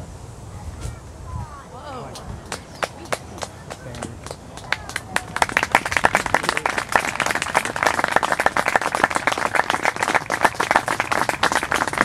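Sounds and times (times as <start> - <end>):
audience applauding: 2.4 - 12.0.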